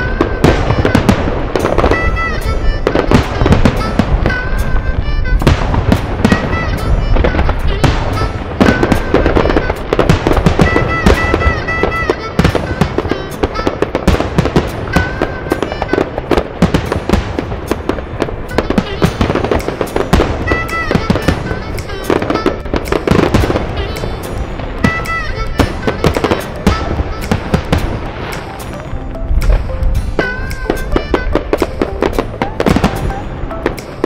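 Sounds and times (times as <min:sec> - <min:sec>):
fireworks bangs and crackling: 0:00.0 - 0:34.0.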